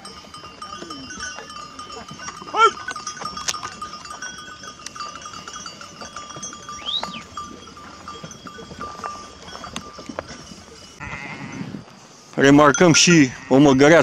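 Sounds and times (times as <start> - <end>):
sheep bells clinking: 0.0 - 14.0
sheep bleating: 11.0 - 11.7, 13.2 - 13.7.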